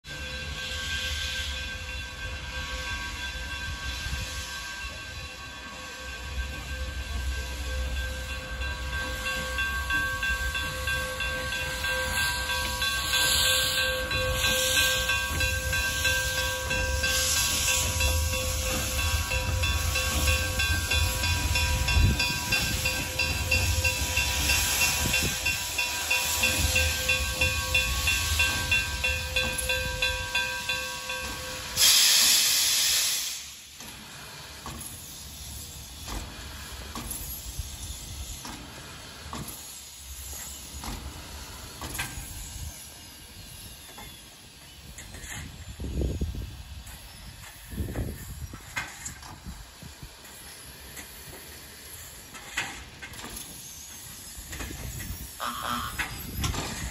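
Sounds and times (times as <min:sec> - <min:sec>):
steam hissing: 0:00.1 - 0:56.9
loud blast of steam: 0:31.6 - 0:35.4.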